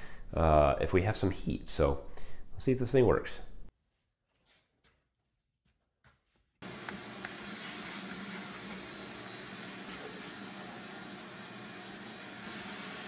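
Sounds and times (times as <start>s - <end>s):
vacuum cleaner running: 6.6s - 13.0s.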